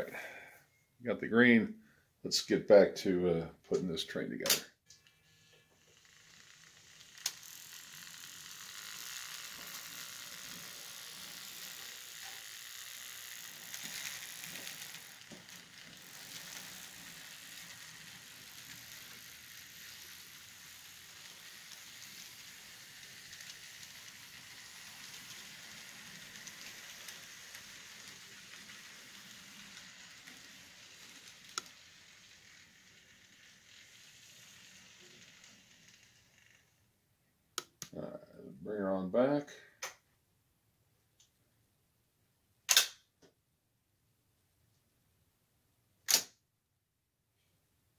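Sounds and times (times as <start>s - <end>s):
sharp click: 4.4s - 4.7s, 37.6s - 38.0s, 42.7s - 43.1s, 46.0s - 46.4s
model train wheels rattling on rails: 4.4s - 36.9s.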